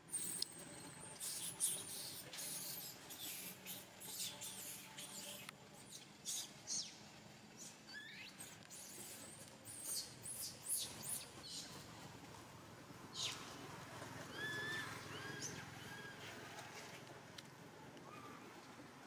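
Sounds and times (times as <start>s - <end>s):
baby monkey squealing: 7.9s - 8.3s, 14.3s - 16.1s.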